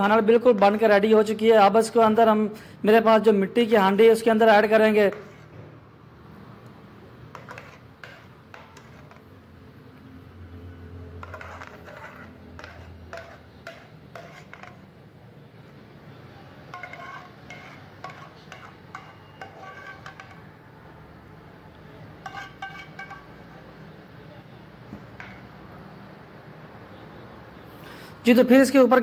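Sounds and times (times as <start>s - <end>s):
metal ladle scraping a steel pan: 4.9s - 5.6s, 7.3s - 9.4s, 11.1s - 15.0s, 16.6s - 20.6s, 22.2s - 23.4s, 25.0s - 25.6s.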